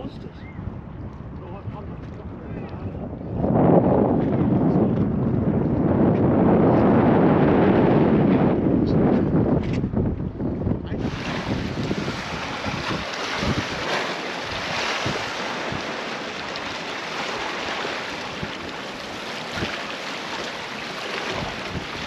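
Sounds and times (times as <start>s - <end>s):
wind buffeting microphone: 0.0s - 22.0s
small waves lapping on rocks: 11.0s - 22.0s.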